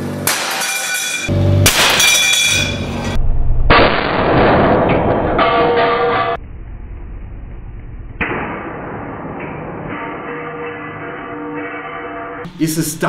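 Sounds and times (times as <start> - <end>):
loud crash of steel dropping: 0.2 - 6.4.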